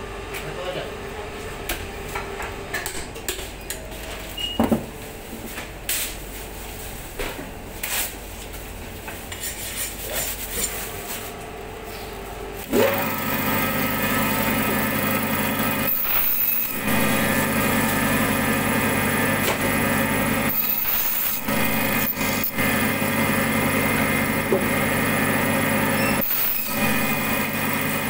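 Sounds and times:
machine humming: 10.9 - 28.0.

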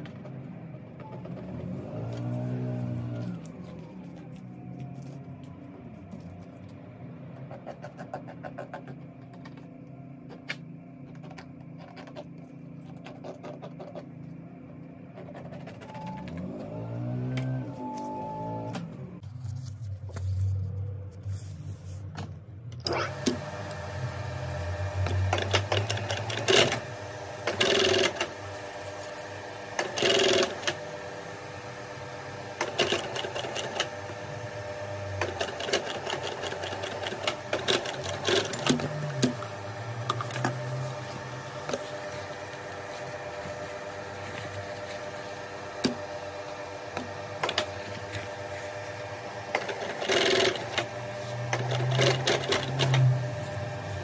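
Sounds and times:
sewing machine stitching: 24.7 - 28.4, 29.7 - 30.9, 32.5 - 34.1, 35.0 - 42.3, 49.5 - 54.0.

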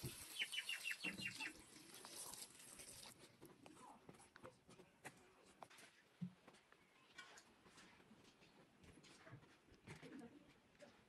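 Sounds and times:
water splashing into metal bowl: 0.0 - 3.2.

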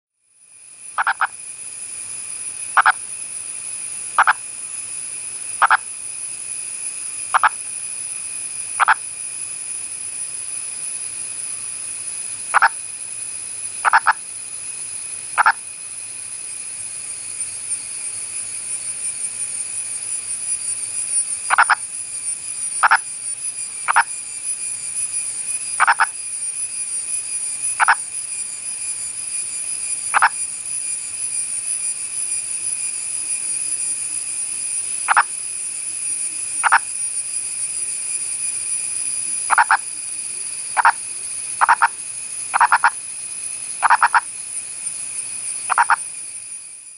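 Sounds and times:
frog croaking: 1.0 - 1.4, 2.8 - 3.0, 4.2 - 4.4, 5.6 - 5.8, 7.3 - 7.6, 8.8 - 9.0, 12.5 - 12.8, 13.8 - 14.2, 15.4 - 15.6, 21.5 - 21.8, 22.8 - 23.0, 23.9 - 24.1, 25.8 - 26.1, 27.8 - 28.0, 30.1 - 30.4, 35.1 - 35.3, 36.6 - 36.9, 39.5 - 39.9, 40.8 - 41.0, 41.6 - 43.0, 43.8 - 44.3, 45.7 - 46.0.

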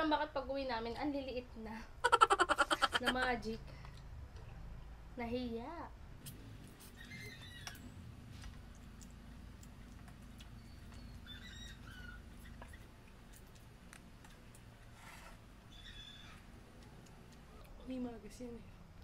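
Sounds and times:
chewing clicks and smacks: 8.4 - 14.9, 16.4 - 17.8.

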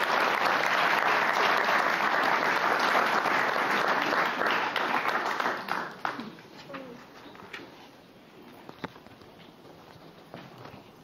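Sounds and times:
audience applauding: 0.0 - 6.4.

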